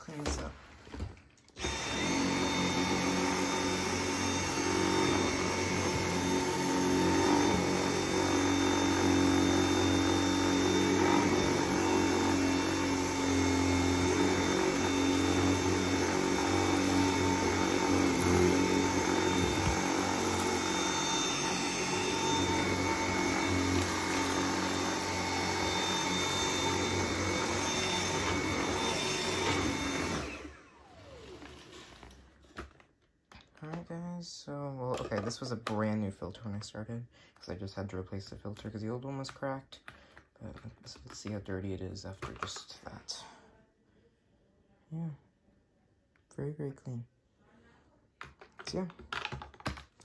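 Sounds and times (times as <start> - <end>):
vacuum cleaner running on carpet: 1.6 - 32.1.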